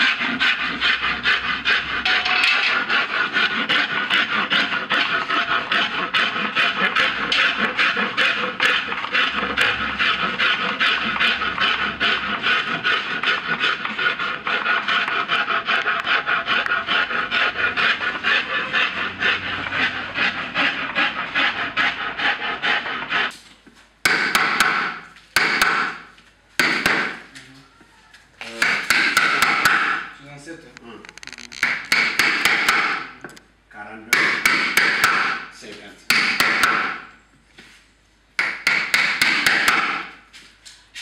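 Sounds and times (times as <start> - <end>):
wood being rasped by hand: 0.0 - 23.3, 28.6 - 30.1, 31.2 - 33.2, 34.1 - 35.5, 36.1 - 37.1, 38.4 - 40.3.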